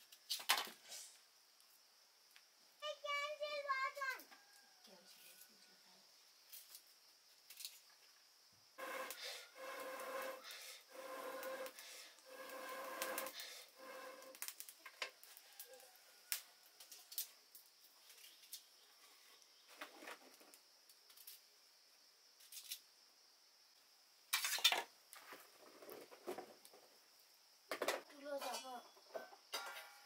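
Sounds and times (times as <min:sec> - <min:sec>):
breathy blow on a fire: 0:08.8 - 0:14.6.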